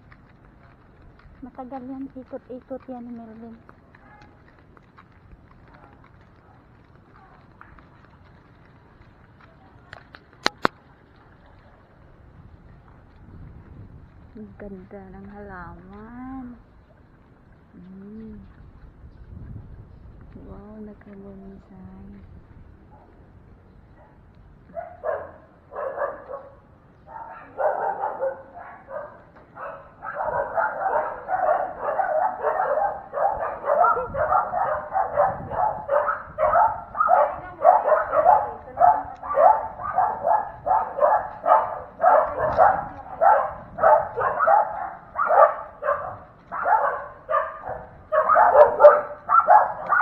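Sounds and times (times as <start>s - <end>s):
dog barking: 24.0s - 50.0s.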